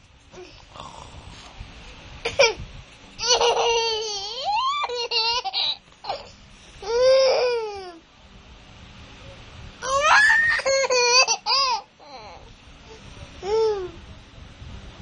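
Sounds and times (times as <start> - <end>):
young child laughing and squealing: 3.2 - 6.3, 9.8 - 12.3.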